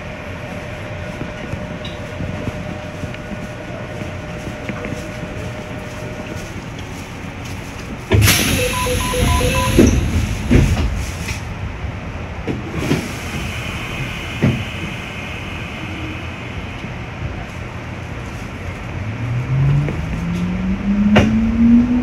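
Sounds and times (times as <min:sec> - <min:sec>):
train doors thudding shut: 0:08.1 - 0:11.4
short electronic beeps: 0:08.3 - 0:10.2.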